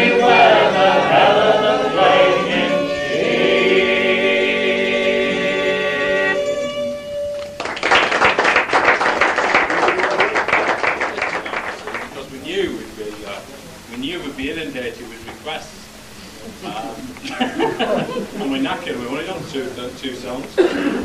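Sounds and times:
men singing in harmony: 0.0 - 6.7
melodeon and guitar: 6.3 - 7.6
audience applauding: 7.3 - 12.4.

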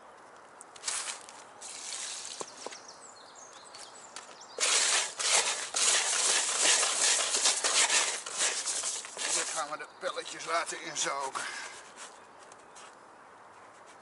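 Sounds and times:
hands kneading groundbait: 4.6 - 9.8.

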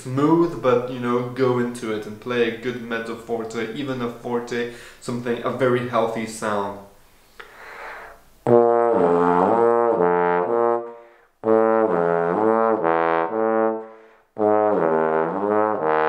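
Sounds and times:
trombone playing low phrases: 8.4 - 16.0.

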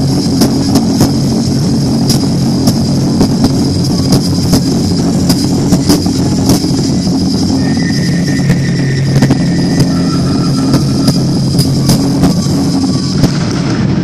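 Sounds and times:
sharp drum strikes: 0.0 - 13.9.

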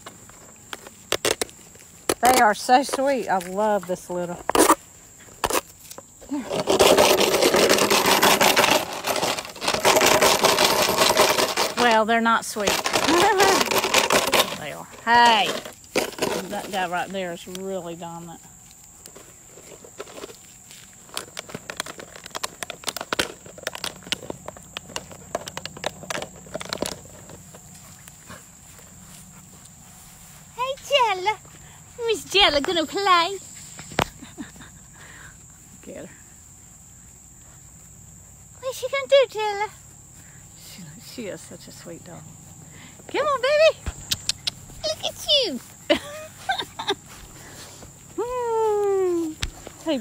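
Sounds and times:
puppies scuffling in grass: 0.0 - 50.0
plastic water bottle crinkling: 18.6 - 28.1.

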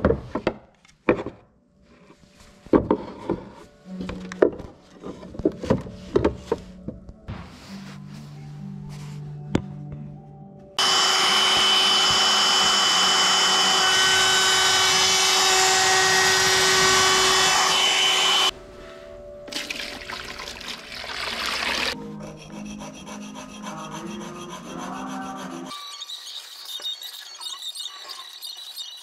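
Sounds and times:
shop vacuum running: 10.8 - 18.5.

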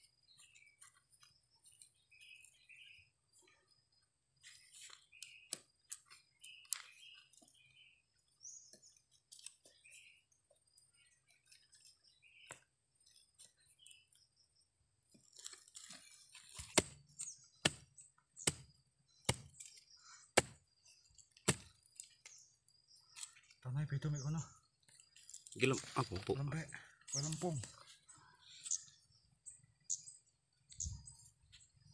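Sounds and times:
birds chirping faintly: 0.0 - 31.9
machete scraping soil: 15.2 - 20.6, 21.4 - 22.4
machete chopping roots: 16.5 - 18.7, 19.3 - 19.7, 20.4 - 20.6, 21.4 - 21.8.

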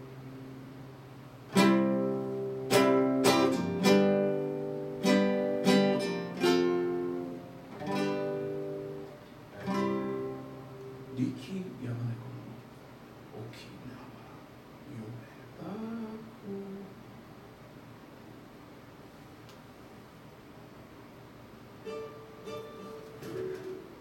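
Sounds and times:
acoustic guitar strummed chords: 0.0 - 11.4, 21.8 - 24.0.

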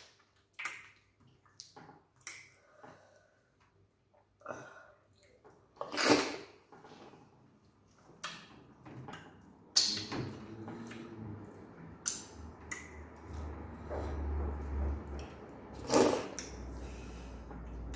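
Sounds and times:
wet mouth noises: 9.1 - 10.2, 15.8 - 16.6.

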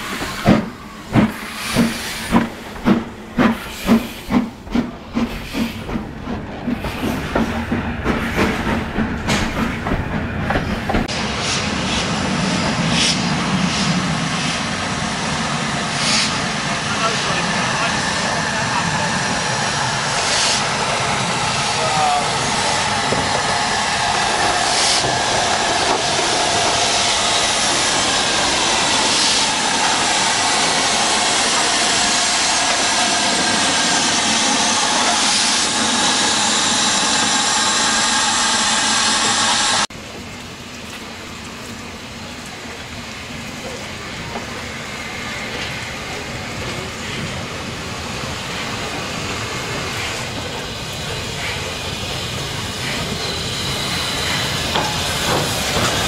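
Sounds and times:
steam locomotive hissing steam: 0.0 - 9.8, 10.5 - 39.9, 42.6 - 56.0
steam locomotive running in: 0.0 - 56.0.

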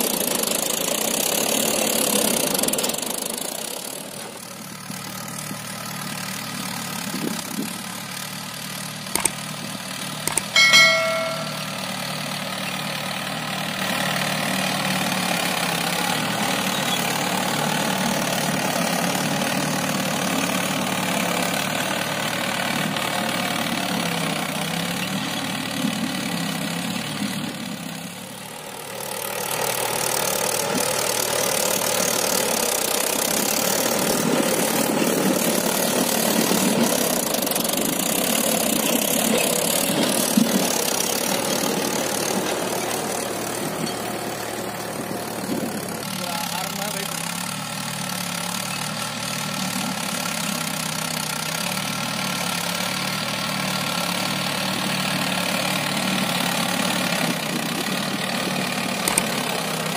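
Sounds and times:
tractor diesel engine under load: 0.0 - 10.5, 11.6 - 59.9
sharp clicks: 9.2 - 9.4, 10.3 - 10.5
ringing metallic clang: 10.3 - 11.9.

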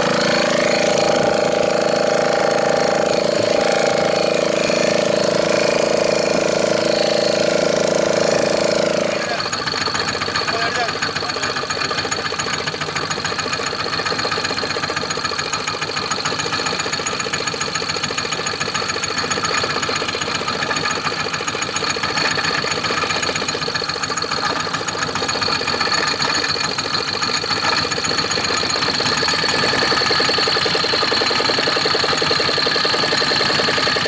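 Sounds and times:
boat engine idling with knocking: 0.0 - 34.0.

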